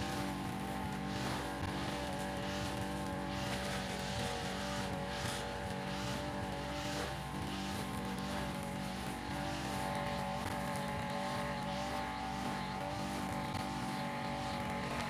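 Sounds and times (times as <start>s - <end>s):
trimmer line swishing through grass: 0.0s - 12.0s
grass trimmer engine running: 0.0s - 15.0s.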